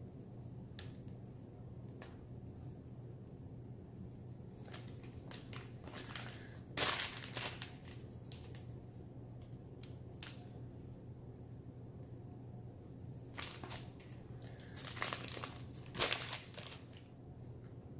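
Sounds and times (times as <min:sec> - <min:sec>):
low steady hum: 0:00.0 - 0:17.9
plastic piping bag crinkling: 0:04.2 - 0:08.8, 0:09.4 - 0:10.6, 0:13.3 - 0:17.2
wax paper rustling: 0:04.2 - 0:08.8, 0:13.3 - 0:17.2.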